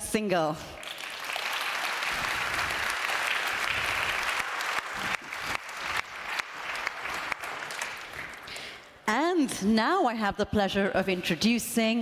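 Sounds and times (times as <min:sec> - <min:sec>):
audience applauding: 0:00.8 - 0:08.7.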